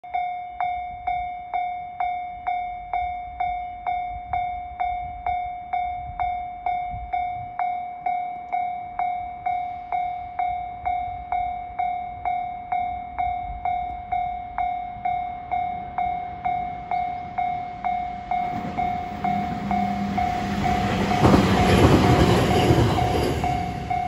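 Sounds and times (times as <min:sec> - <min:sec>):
level crossing alarm dinging: 0:07.8 - 0:24.0.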